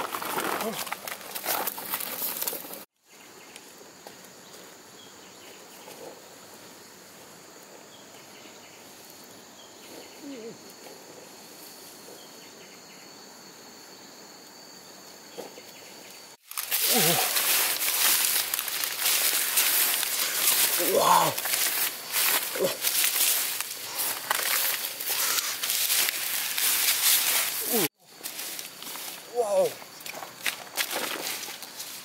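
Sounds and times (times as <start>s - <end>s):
leaves rustling underfoot: 0.0s - 7.8s, 16.4s - 32.0s
insects trilling: 0.0s - 32.0s.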